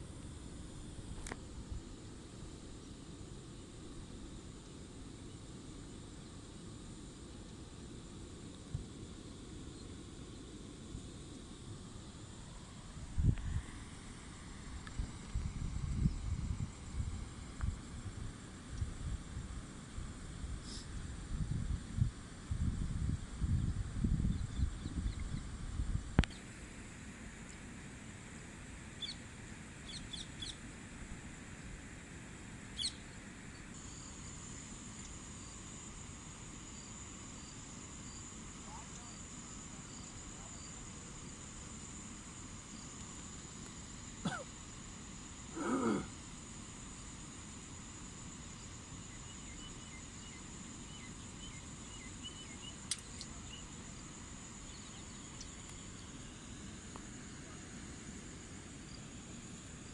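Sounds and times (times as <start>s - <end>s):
high insect drone: 0.0s - 59.9s
outdoor background noise: 0.0s - 59.9s
small birds chirping: 29.0s - 29.2s, 29.8s - 30.6s, 32.7s - 34.1s, 49.0s - 53.8s, 54.6s - 56.2s
sharp click: 52.9s - 53.3s.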